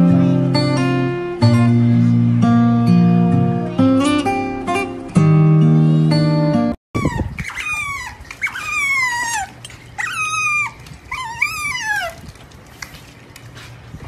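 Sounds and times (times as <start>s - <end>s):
otter squeaky calls: 7.0s - 12.2s.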